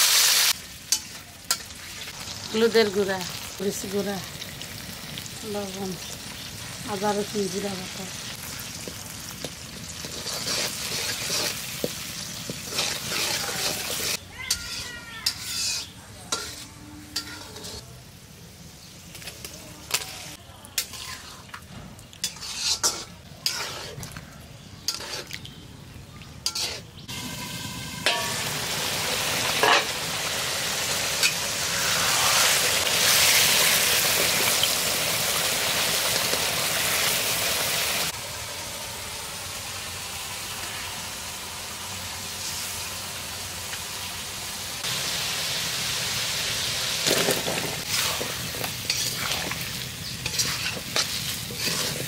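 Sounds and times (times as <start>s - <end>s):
frying sizzle: 0.0s - 52.0s
spatula scraping in pan: 9.5s - 17.9s, 19.9s - 21.6s, 22.2s - 24.2s, 24.8s - 25.4s, 26.4s - 27.1s, 47.0s - 52.0s.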